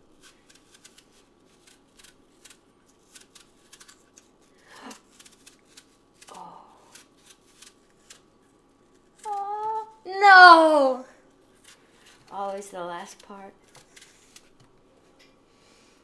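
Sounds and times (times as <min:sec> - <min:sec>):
knife peeling apple clicks: 0:00.2 - 0:04.3.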